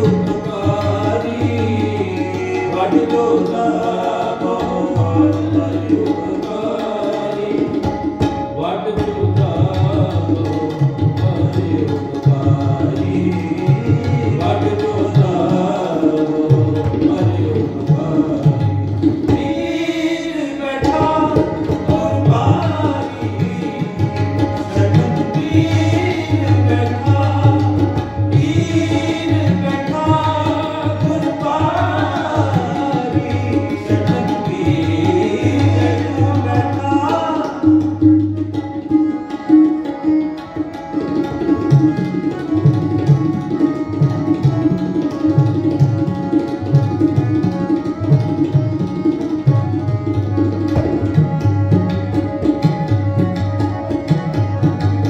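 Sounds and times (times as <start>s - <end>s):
harmoniums playing: 0.0s - 55.0s
tabla playing: 0.0s - 55.0s.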